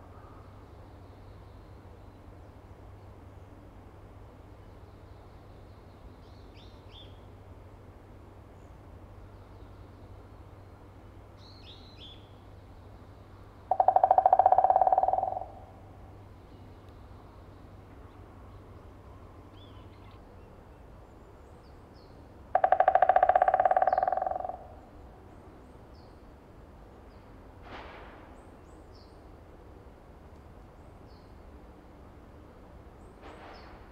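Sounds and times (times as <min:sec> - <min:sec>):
woodpecker drumming on branch: 0:13.7 - 0:15.8, 0:22.5 - 0:24.8
small birds chirping: 0:21.2 - 0:24.8.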